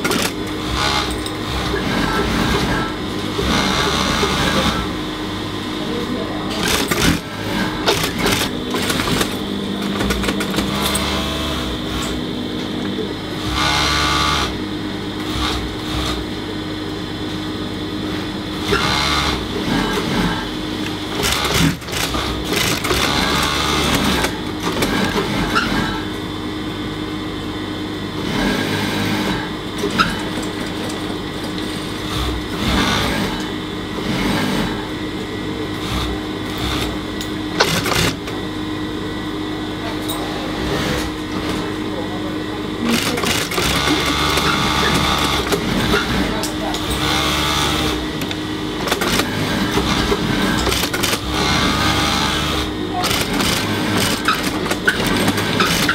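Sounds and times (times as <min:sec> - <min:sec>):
sewing machine stitching: 0:00.0 - 0:05.0, 0:06.5 - 0:12.2, 0:13.4 - 0:14.6, 0:18.6 - 0:26.1, 0:32.0 - 0:34.9, 0:35.8 - 0:37.0, 0:37.6 - 0:38.4, 0:42.8 - 0:55.9
sewing machine motor hum: 0:00.0 - 0:55.9.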